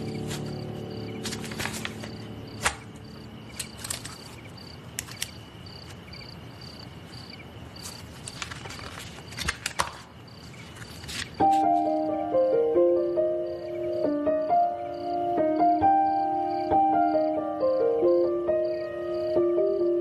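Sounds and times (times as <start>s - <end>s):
paper rustling on a desk: 0.0s - 6.0s, 7.8s - 11.9s
high insect trill: 0.0s - 9.4s, 10.1s - 20.0s
crickets chirping: 0.0s - 20.0s.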